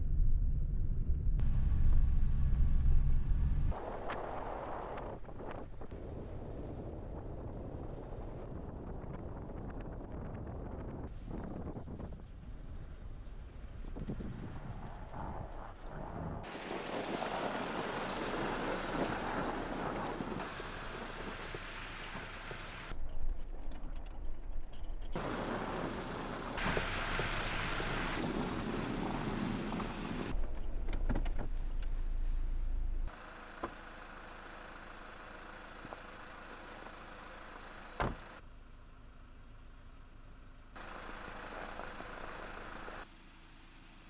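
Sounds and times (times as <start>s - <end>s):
truck engine and tyre rumble: 0.0s - 44.0s
vehicle door shutting: 38.0s - 38.3s.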